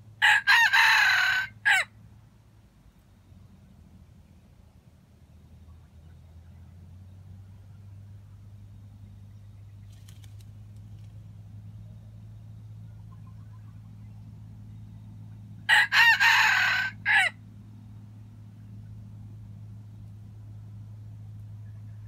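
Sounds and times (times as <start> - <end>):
rooster crowing: 0.2 - 1.9, 15.7 - 17.4.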